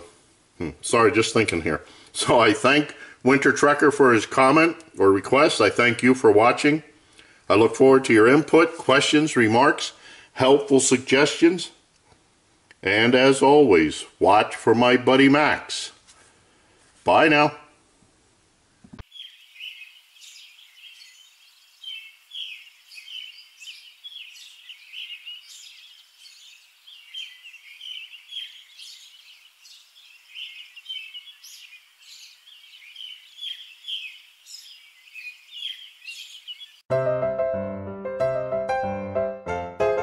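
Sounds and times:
small birds chirping: 19.0 - 36.9.

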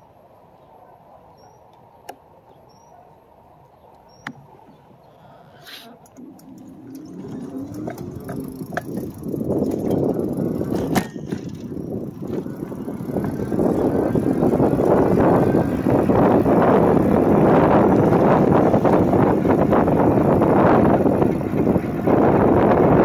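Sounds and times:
tyre noise on pavement: 3.7 - 23.0
wind buffeting microphone: 5.8 - 23.0.

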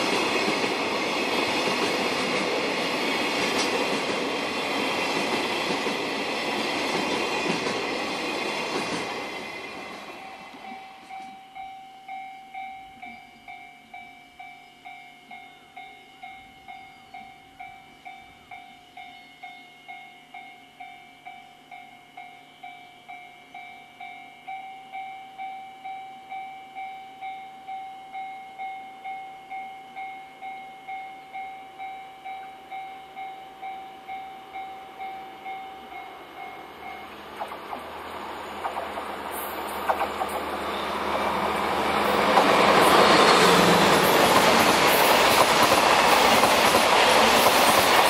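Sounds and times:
diesel locomotive engine: 0.0 - 11.7, 31.8 - 48.0.

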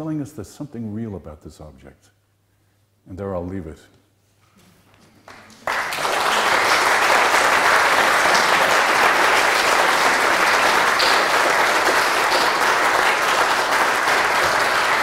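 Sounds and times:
audience applauding: 5.2 - 15.0.

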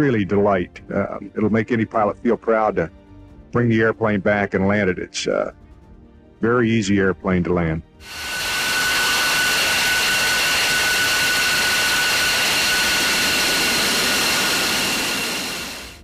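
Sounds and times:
jet engines whining: 8.0 - 16.0.

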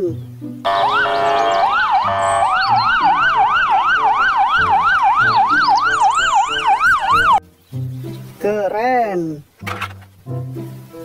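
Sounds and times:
police siren yelping: 0.7 - 7.4.

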